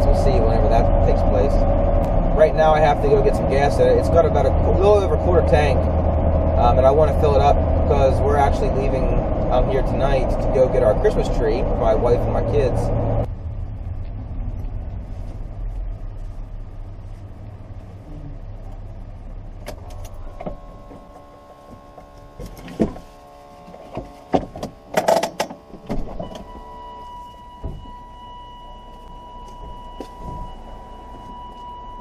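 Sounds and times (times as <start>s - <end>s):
pickup truck engine rumble: 0.0s - 32.0s
car door opening: 19.6s - 28.4s, 29.0s - 31.7s
electronic warning tone: 26.2s - 32.0s.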